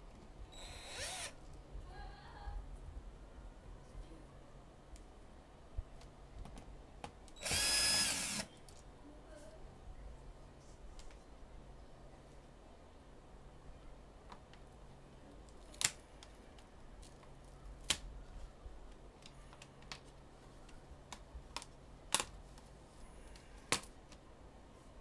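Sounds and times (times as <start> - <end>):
plastic clips snapping: 21.1 - 22.4.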